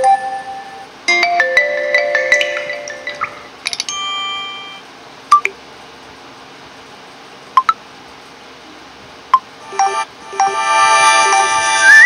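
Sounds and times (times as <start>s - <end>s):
melodic phone tone: 0.0s - 4.8s, 9.6s - 12.0s
phone notification chime: 1.3s - 4.8s.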